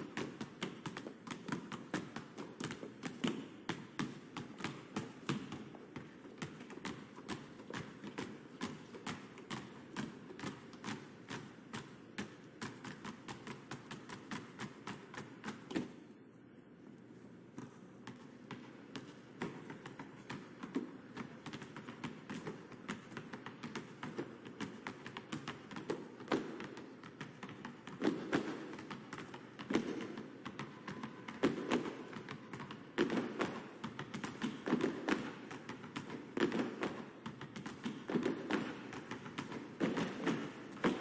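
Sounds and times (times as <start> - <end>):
basketballs bouncing on asphalt: 18.1 - 41.0.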